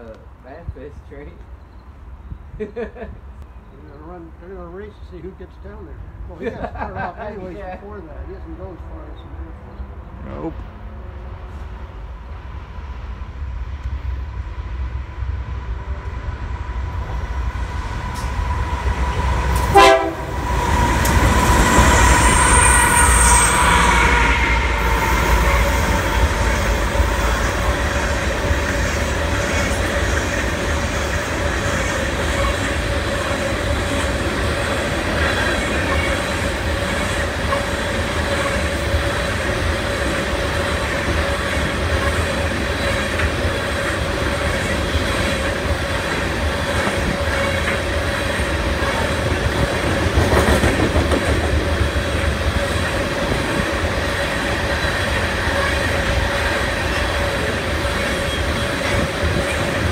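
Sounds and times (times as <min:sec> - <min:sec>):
freight train rumble: 0:00.0 - 0:59.9
wheels squealing: 0:18.1 - 0:38.9
train wheels clickety-clack: 0:19.1 - 0:22.3, 0:24.9 - 0:59.9
locomotive horn chord: 0:19.6 - 0:20.5.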